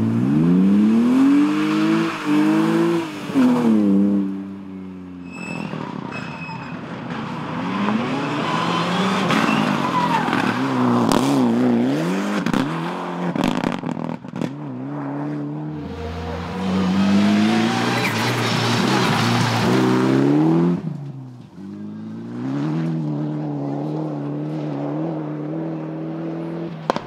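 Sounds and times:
rally car engine revving hard: 0:00.0 - 0:04.3, 0:07.4 - 0:20.9.

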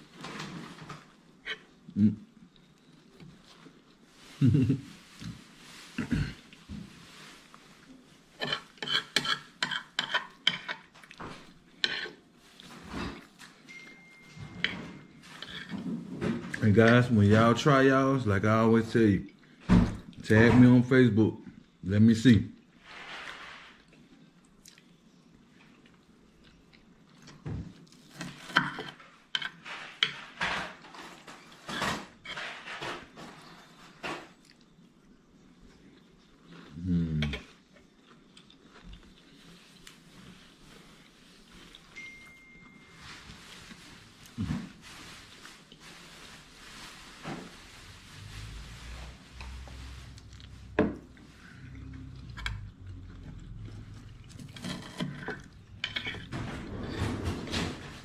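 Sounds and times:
fork scraping a ceramic plate: 0:08.4 - 0:10.9, 0:11.8 - 0:13.3, 0:14.4 - 0:16.0, 0:28.1 - 0:33.8, 0:54.2 - 0:56.3.

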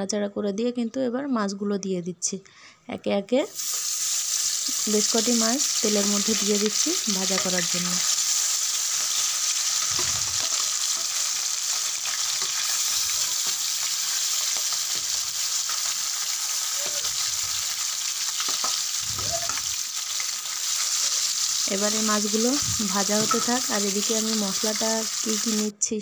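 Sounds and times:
fish sizzling in hot oil: 0:03.5 - 0:25.7
soft bumps of fish in pan: 0:08.1 - 0:15.2.

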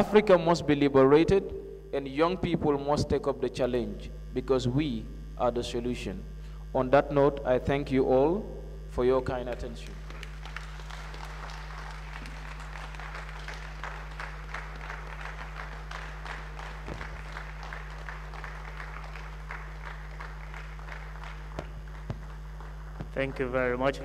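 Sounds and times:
low electrical hum: 0:00.0 - 0:24.0
audience applauding: 0:09.8 - 0:23.8.

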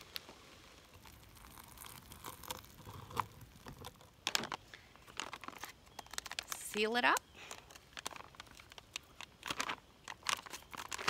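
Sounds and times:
boiling water pouring into pouch: 0:00.0 - 0:04.0
foil pouch crinkling: 0:00.0 - 0:11.0.

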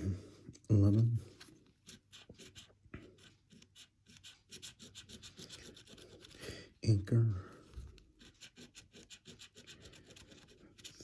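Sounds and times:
coin scraping scratch card: 0:01.8 - 0:06.4, 0:08.2 - 0:11.0.

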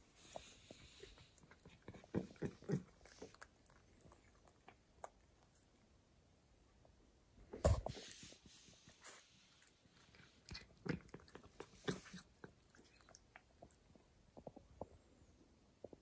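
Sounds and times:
cat chewing and licking: 0:00.0 - 0:06.0, 0:07.5 - 0:15.0.

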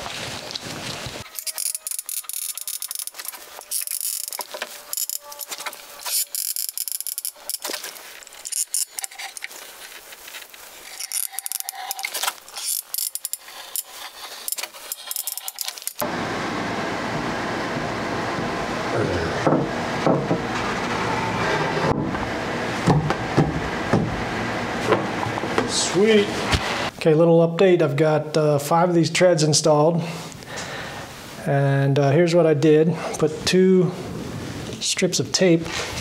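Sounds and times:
tools clicking and knocking: 0:01.4 - 0:07.7.

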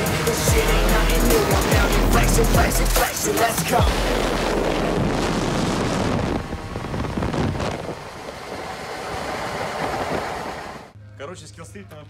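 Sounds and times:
wind rushing over microphone: 0:03.9 - 0:10.9
motor scooter engine: 0:06.6 - 0:10.9.

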